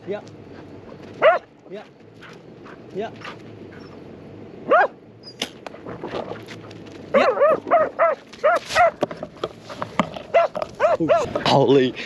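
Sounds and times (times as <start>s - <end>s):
dog barking: 1.2s - 1.5s, 4.6s - 5.0s, 7.1s - 9.0s, 10.3s - 11.4s
rustling: 5.6s - 11.5s.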